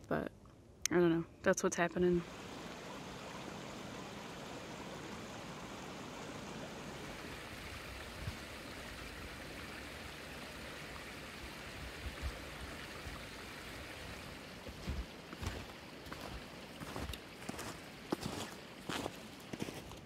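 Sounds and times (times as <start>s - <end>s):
creek water rushing: 2.2s - 20.0s.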